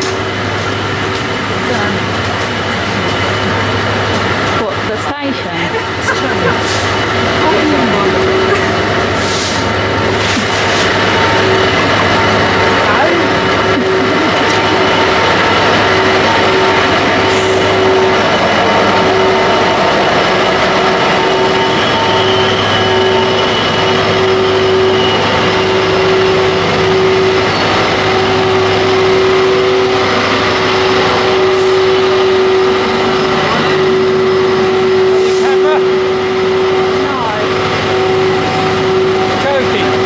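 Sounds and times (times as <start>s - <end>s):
pulsing hum: 2.8s - 40.0s
steam hissing: 5.8s - 35.6s.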